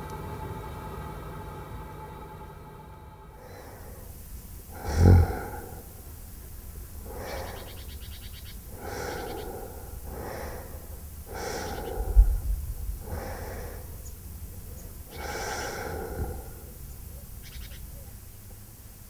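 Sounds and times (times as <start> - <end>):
low rumble: 0.0 - 17.2
person snoring: 4.7 - 6.0, 7.0 - 7.8, 8.7 - 12.4, 15.1 - 16.7.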